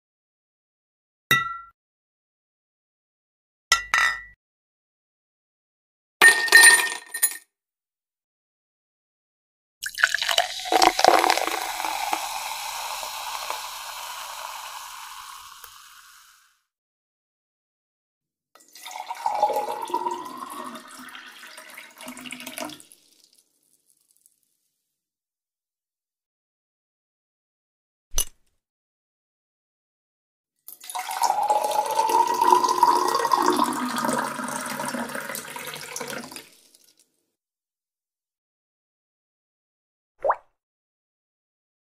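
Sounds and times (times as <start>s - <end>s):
water poured into a glass: 9.8s - 16.5s, 18.6s - 23.4s, 30.7s - 37.0s.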